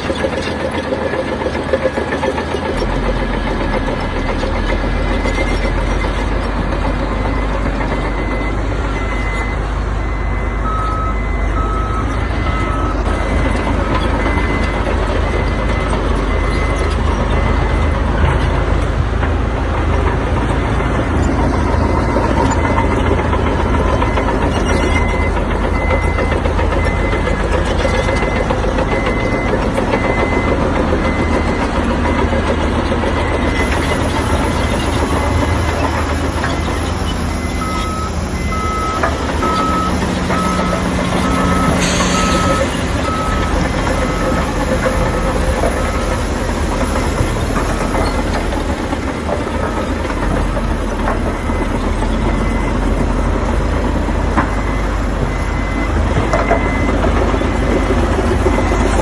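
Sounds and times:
heavy machinery engine drone: 0.0s - 59.0s
reversing alarm beeping: 7.0s - 18.4s, 20.9s - 59.0s
lower-pitched alarm beeping: 33.2s - 49.0s.

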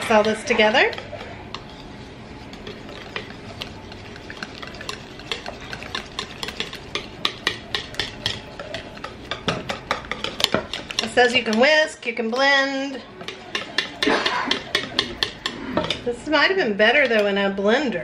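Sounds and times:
whisk beating batter in bowl: 0.0s - 17.3s.

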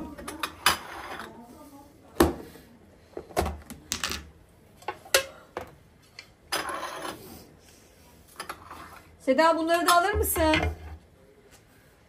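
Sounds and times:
tray scraping on counter: 6.5s - 7.3s.

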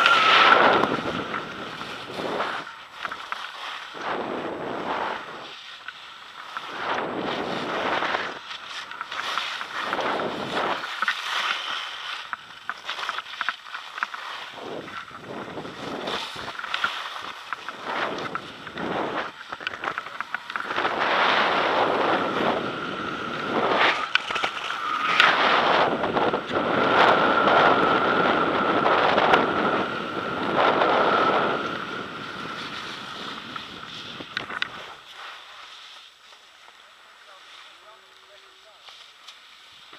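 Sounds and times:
wind noise on microphone: 0.0s - 13.3s, 14.3s - 35.1s
skis carving on snow: 0.0s - 39.9s.

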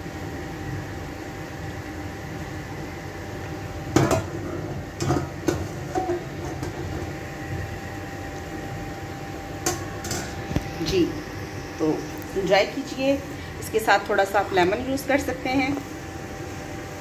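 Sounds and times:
background hum: 0.0s - 17.0s
steel pot knocked on stove: 3.9s - 4.4s.

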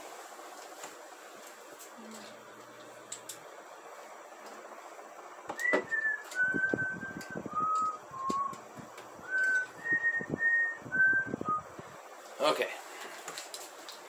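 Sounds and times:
whistled tune: 5.5s - 8.6s, 9.2s - 11.7s.

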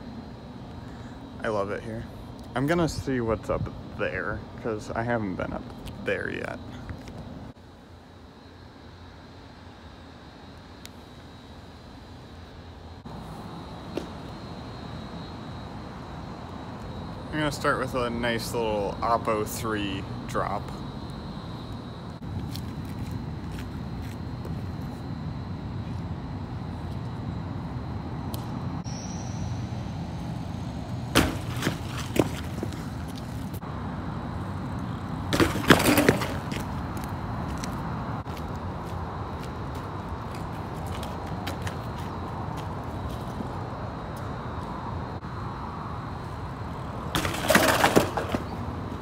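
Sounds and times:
bike landing with clattering impact: 31.1s - 33.6s, 35.3s - 36.8s, 47.1s - 48.6s.

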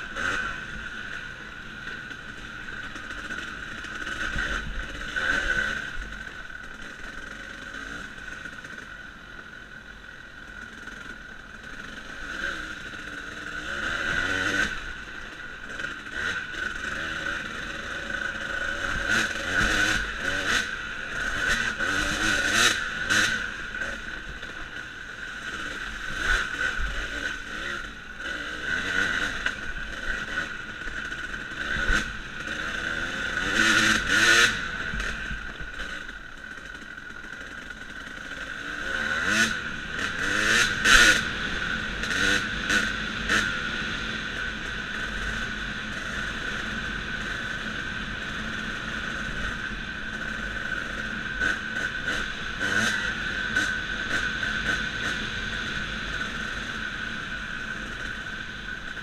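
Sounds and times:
dirt bike engine revving: 0.0s - 8.9s, 10.6s - 59.0s.

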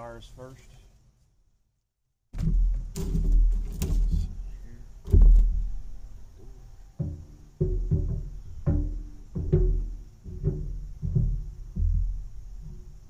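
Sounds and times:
heavy thump: 2.3s - 13.0s
metal stove door knocking: 7.0s - 12.2s.

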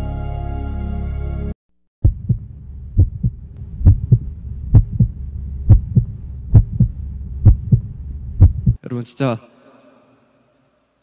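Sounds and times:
heartbeat thumps: 2.0s - 8.8s
low steady hum: 2.0s - 8.8s.

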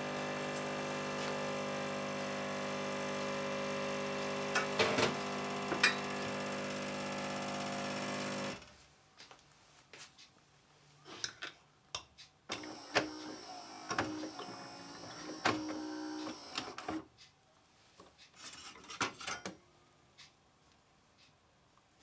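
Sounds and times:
milk frother buzzing and hissing: 0.0s - 8.7s, 12.6s - 17.0s.

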